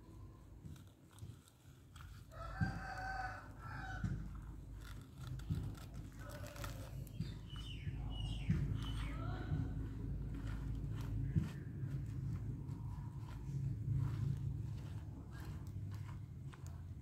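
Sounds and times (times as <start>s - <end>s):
rooster crowing: 2.3s - 4.2s.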